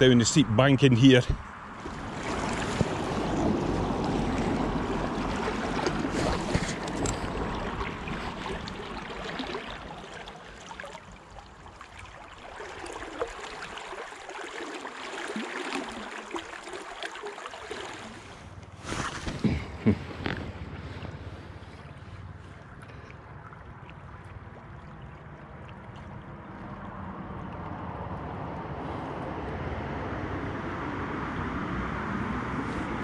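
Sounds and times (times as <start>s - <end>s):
fast river water running: 0.0s - 29.1s.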